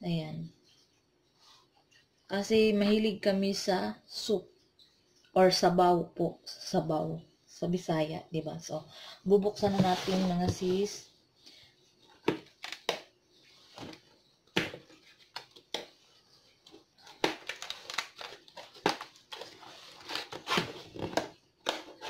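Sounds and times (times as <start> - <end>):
cardboard box being handled: 9.6 - 10.9.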